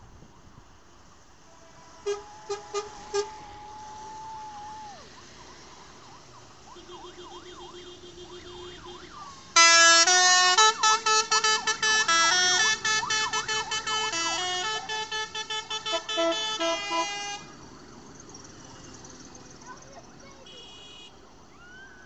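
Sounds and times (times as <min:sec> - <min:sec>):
vehicle musical horn playing tune: 0:01.4 - 0:03.5, 0:06.7 - 0:17.5, 0:20.5 - 0:21.1
siren yelping: 0:02.0 - 0:17.4, 0:21.5 - 0:22.0.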